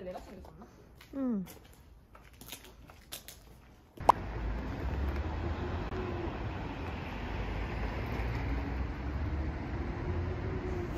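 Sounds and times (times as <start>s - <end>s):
low rumble of road traffic: 3.6s - 10.9s.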